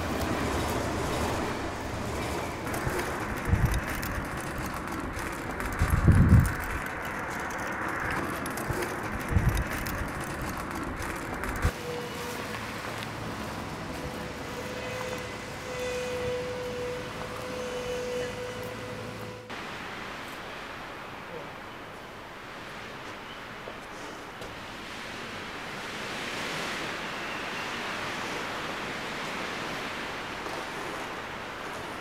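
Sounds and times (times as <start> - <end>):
shopping cart rattling over pavement: 0.0 - 12.3
street noise: 0.0 - 32.0
wind thumps on microphone: 2.6 - 4.3, 5.1 - 6.9, 8.7 - 11.7.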